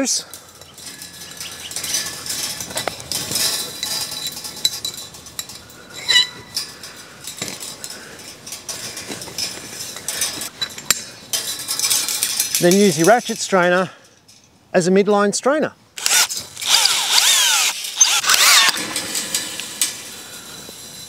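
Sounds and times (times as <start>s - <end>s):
wire scraping and clinking on post: 0.0s - 14.6s, 16.0s - 21.0s.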